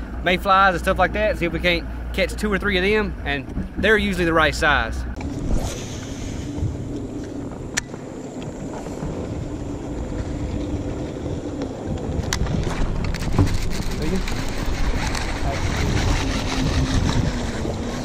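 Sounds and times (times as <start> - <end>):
boat motor running: 0.7 - 18.0
wind noise on microphone: 5.2 - 18.0.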